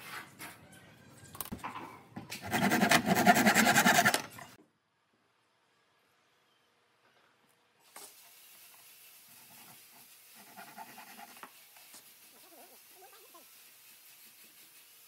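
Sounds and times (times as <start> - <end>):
faint steady hiss: 5.0 - 10.6.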